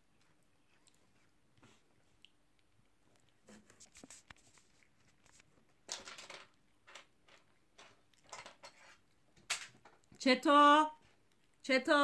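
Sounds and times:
cat chewing: 0.0 - 5.9, 11.0 - 11.6.

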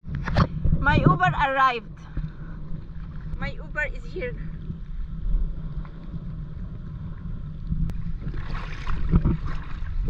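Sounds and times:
wind buffeting microphone: 0.0 - 10.0
shallow water splash: 7.9 - 10.0.

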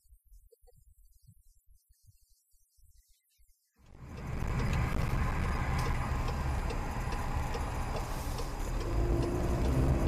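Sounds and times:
car engine and road rumble: 3.8 - 10.0
turn signal ticking: 3.9 - 10.0.

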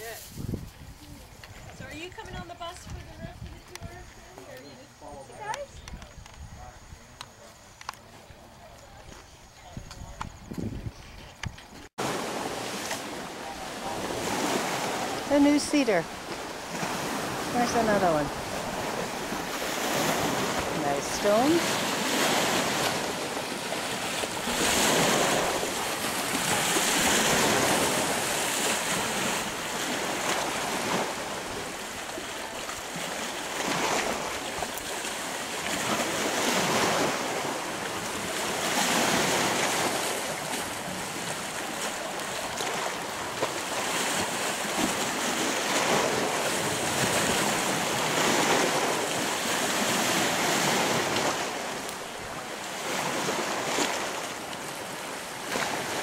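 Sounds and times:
wind blowing: 0.0 - 56.0
waves washing against rocky shore: 12.0 - 56.0.

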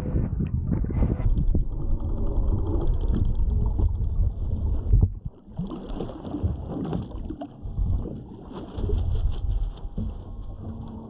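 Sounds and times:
wind buffeting microphone: 0.0 - 5.4
water splashing along hull: 0.0 - 11.0.

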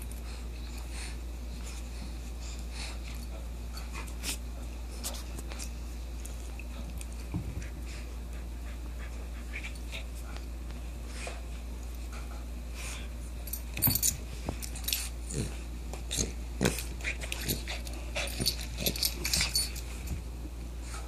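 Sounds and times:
small dog playing with toy: 13.7 - 20.2.

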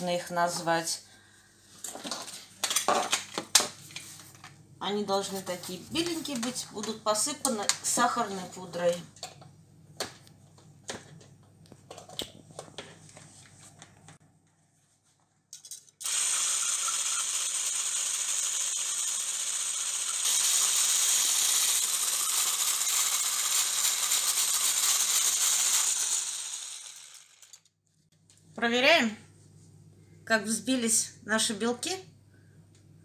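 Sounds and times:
electric hand blender running: 16.0 - 27.6.

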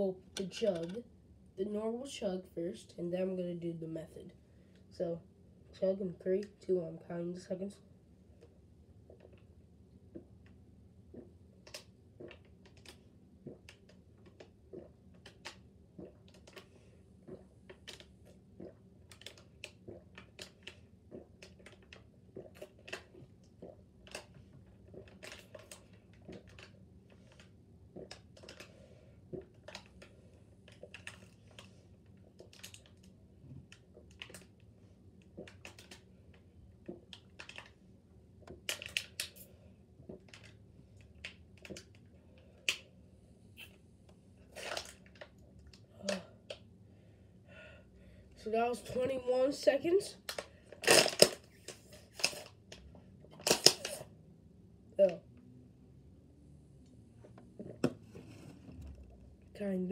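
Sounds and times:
person gulping water: 11.1 - 26.7, 27.9 - 28.7
plastic bottle crackle: 50.3 - 52.5, 53.4 - 54.0.

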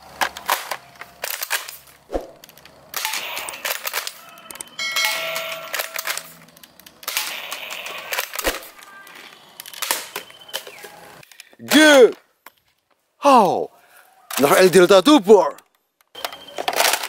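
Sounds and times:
targets clattering: 0.2 - 11.0, 15.6 - 17.0
toy blaster rapid clicking shots: 3.0 - 4.3, 7.0 - 8.7.

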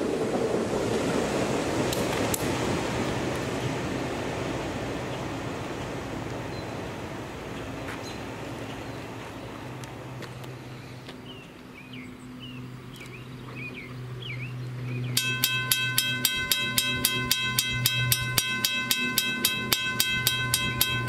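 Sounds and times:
birds chirping: 7.5 - 21.0
low engine drone: 9.5 - 21.0
diesel railcar rumble: 13.4 - 21.0.

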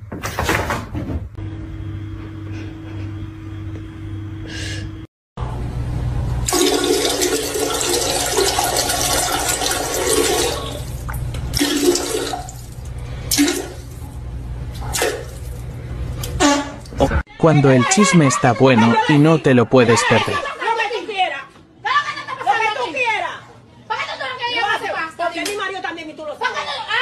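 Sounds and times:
toilet flushing: 6.4 - 15.6
water running: 6.5 - 15.6.

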